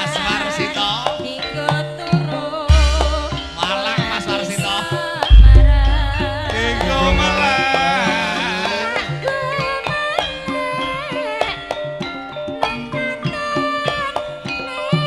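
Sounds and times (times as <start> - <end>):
woman singing into a microphone: 0.0 - 15.0
gamelan music: 1.4 - 15.0
deep low boom: 5.3 - 7.6.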